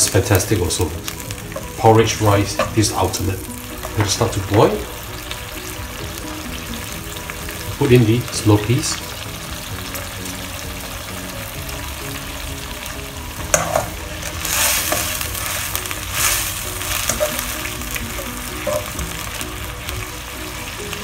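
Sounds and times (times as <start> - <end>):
sauce bubbling and hissing: 0.0 - 21.0
spatula scraping a pan: 13.5 - 19.0.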